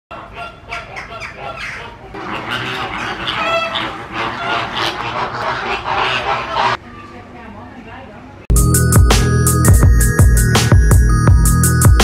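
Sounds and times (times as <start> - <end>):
flamingos honking: 0.1 - 6.8.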